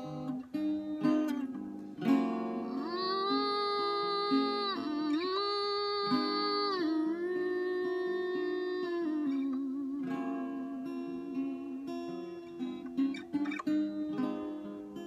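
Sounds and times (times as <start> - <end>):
picked acoustic guitar: 0.0 - 15.0
woman's wordless singing: 2.5 - 12.4.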